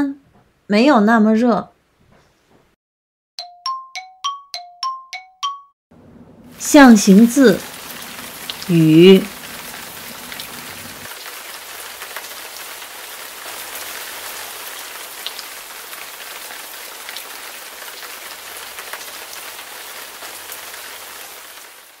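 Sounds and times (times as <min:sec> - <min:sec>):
steady rain falling: 0:06.4 - 0:22.0.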